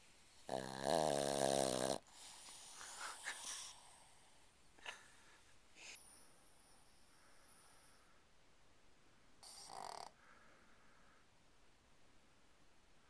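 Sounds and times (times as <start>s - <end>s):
dog snoring: 0.5s - 4.4s, 9.4s - 10.2s.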